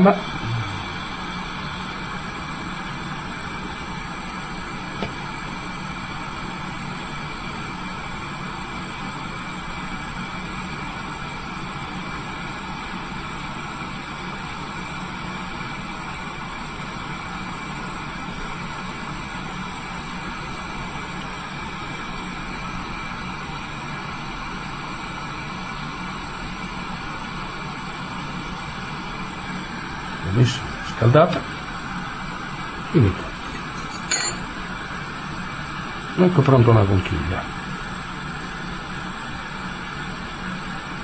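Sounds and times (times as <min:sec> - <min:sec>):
steady hum: 0:00.0 - 0:12.9, 0:28.4 - 0:41.0.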